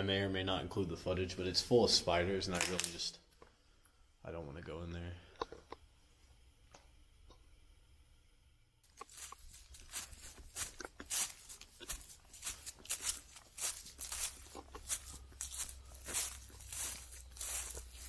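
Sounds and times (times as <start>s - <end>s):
footsteps crunching through dry leaves: 8.9s - 18.0s.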